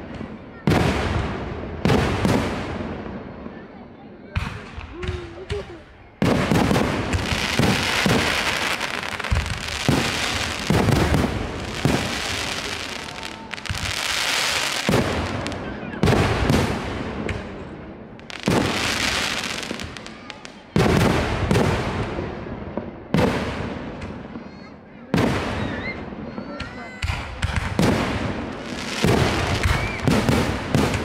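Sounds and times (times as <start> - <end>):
fireworks booming: 0.0 - 3.6, 4.3 - 31.0
fireworks crackling: 4.4 - 22.2, 26.4 - 31.0.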